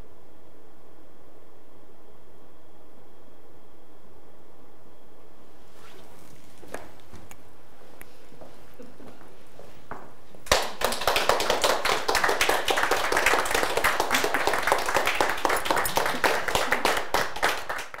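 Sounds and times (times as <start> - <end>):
audience applauding: 10.4 - 18.0.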